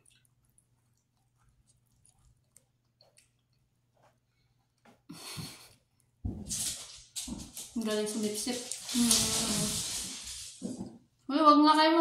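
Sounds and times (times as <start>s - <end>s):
wet chewing mouth clicks: 0.0s - 3.7s.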